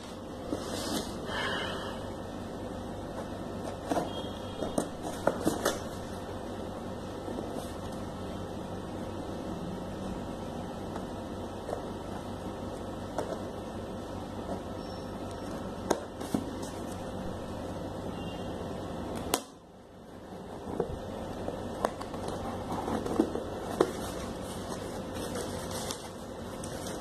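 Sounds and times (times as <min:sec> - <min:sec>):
steady background noise: 0:00.0 - 0:27.0
cardboard box handled: 0:22.0 - 0:27.0.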